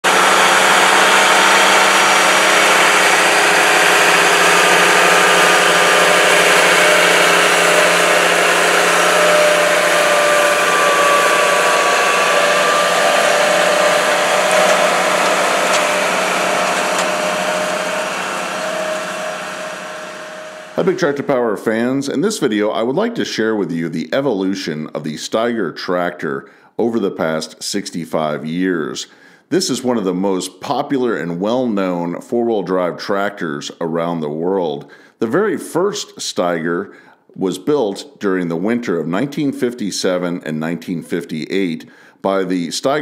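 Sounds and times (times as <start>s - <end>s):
tractor diesel engine under load: 0.0s - 21.3s.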